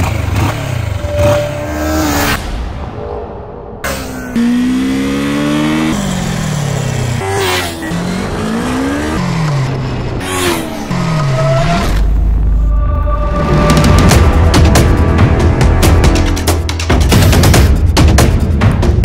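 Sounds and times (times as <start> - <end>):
motorcycle engine revving: 0.0 - 2.4, 3.8 - 12.2
music: 12.0 - 19.0.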